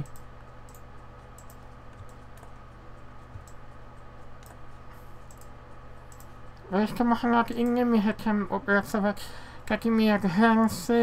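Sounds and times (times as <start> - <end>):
computer mouse clicks: 0.0 - 6.6
steady low hum: 0.0 - 11.0.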